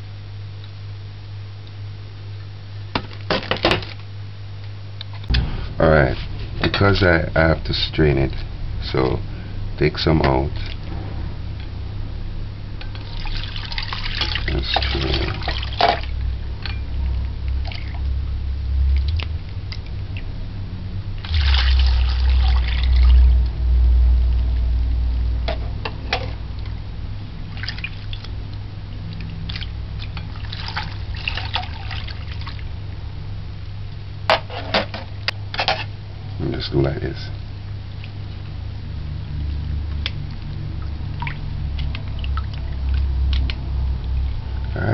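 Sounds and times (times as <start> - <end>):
steady low hum: 0.0 - 44.9
drink pouring through strainer: 12.8 - 18.2, 21.2 - 23.4, 27.5 - 28.3, 29.1 - 32.6
liquid splashing and trickling: 12.8 - 20.4, 21.2 - 23.6, 27.4 - 32.7, 37.9 - 44.7.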